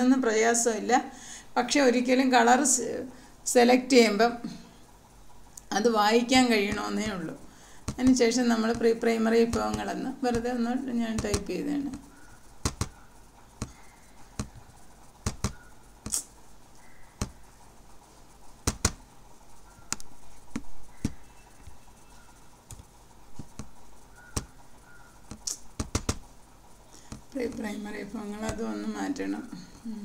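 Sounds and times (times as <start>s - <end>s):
computer mouse clicking: 6.6s - 17.5s, 18.5s - 19.0s, 19.6s - 26.3s, 26.9s - 27.6s.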